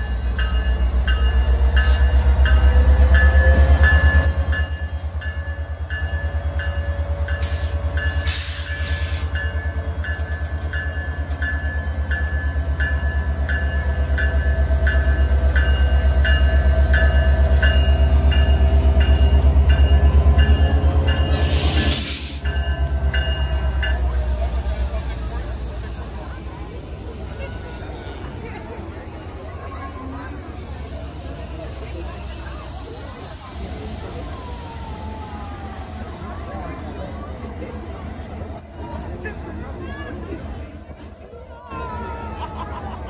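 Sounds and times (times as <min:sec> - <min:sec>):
diesel locomotive engine rumble: 0:00.0 - 0:43.0.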